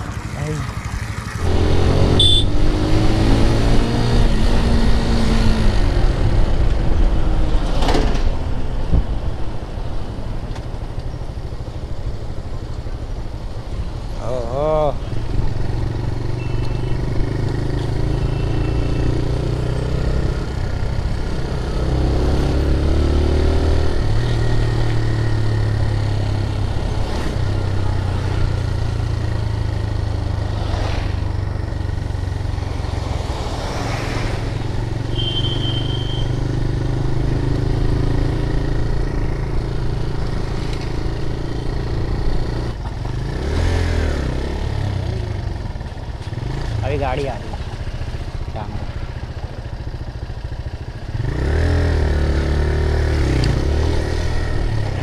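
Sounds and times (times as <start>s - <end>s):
motorcycle engine running: 44.2s - 55.0s.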